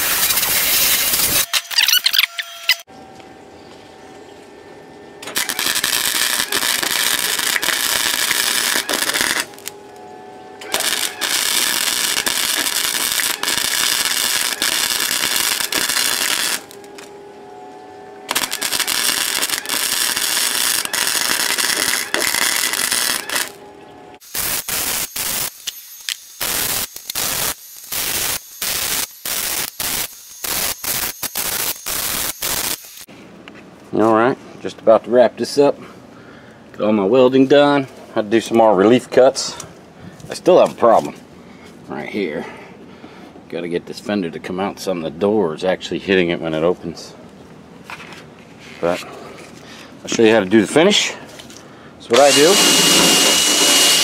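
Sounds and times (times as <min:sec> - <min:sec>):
welder arc crackling: 0:00.0 - 0:02.1, 0:05.2 - 0:10.0, 0:10.6 - 0:17.1, 0:18.3 - 0:23.6, 0:24.2 - 0:33.1, 0:52.1 - 0:54.0.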